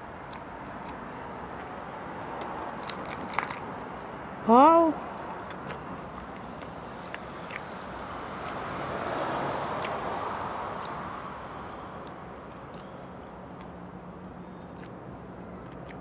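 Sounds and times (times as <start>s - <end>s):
vehicle passing: 0.3s - 12.8s
crispy pork skin crackling: 2.4s - 3.7s.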